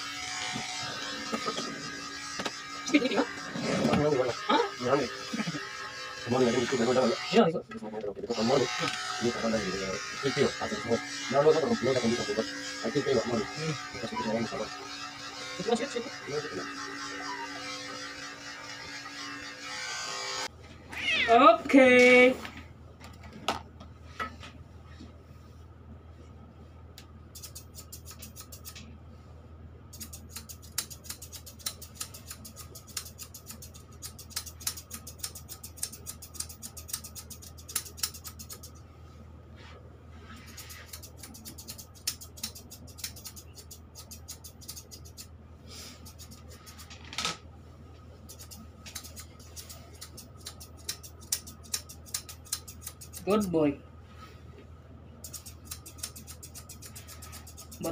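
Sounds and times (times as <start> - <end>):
shears snipping fur: 0.2 - 7.2, 27.3 - 28.9, 29.9 - 38.8, 40.2 - 46.9, 48.2 - 53.6, 55.2 - 57.9
steady low hum: 20.4 - 57.9.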